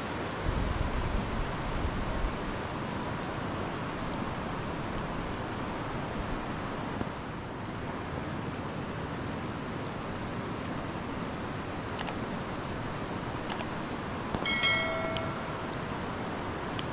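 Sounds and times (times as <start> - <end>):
heavy rain hiss: 0.0 - 16.9
faint clicks: 12.0 - 12.2, 13.5 - 13.7
ringing tone of several pitches: 14.4 - 15.8.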